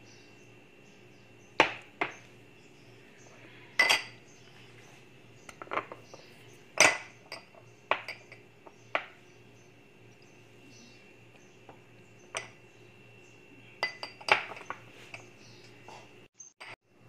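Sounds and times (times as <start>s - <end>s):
glass bowls clinking on countertop: 3.8s - 4.2s, 5.5s - 6.0s, 6.8s - 9.2s, 13.8s - 15.3s.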